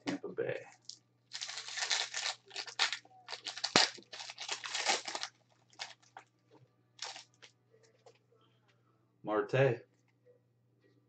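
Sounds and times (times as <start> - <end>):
foil wrapper crinkling and tearing: 0.8 - 6.2, 7.0 - 7.4.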